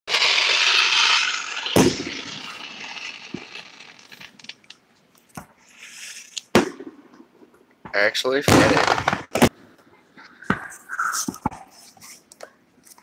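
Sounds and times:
firework bang: 0:00.1 - 0:04.3, 0:06.5 - 0:07.1, 0:08.4 - 0:09.5
firework aerial burst hiss: 0:00.1 - 0:04.4.

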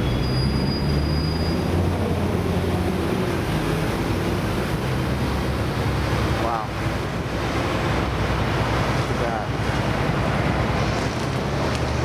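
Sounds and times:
high squeal of brakes: 0:00.0 - 0:02.0
heavy traffic rumble: 0:00.0 - 0:12.0.

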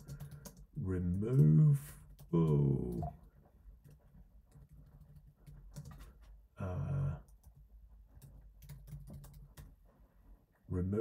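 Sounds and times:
keyboard typing: 0:00.0 - 0:06.3, 0:07.2 - 0:09.8.

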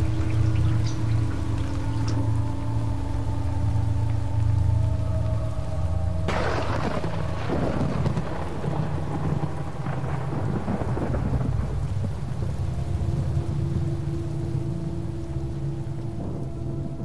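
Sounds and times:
low steady drone: 0:00.0 - 0:17.0
steady rain: 0:00.0 - 0:17.0
thunder: 0:06.2 - 0:12.8.

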